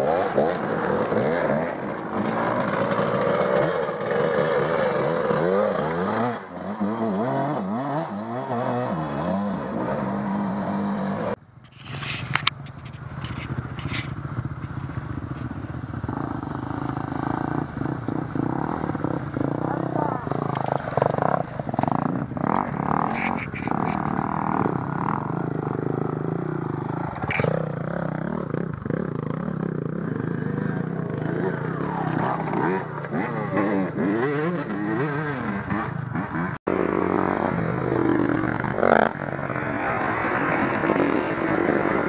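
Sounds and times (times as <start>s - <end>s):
dirt bike engine revving: 0.0s - 42.0s.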